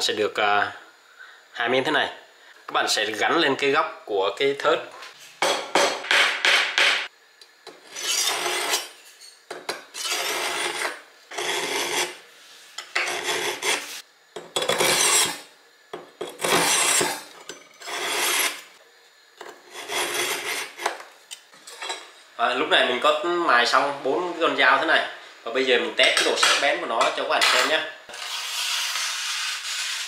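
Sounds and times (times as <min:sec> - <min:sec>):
knife rasping across flint wheels: 0:10.0 - 0:12.2, 0:12.8 - 0:14.0, 0:17.8 - 0:18.6, 0:19.7 - 0:20.9.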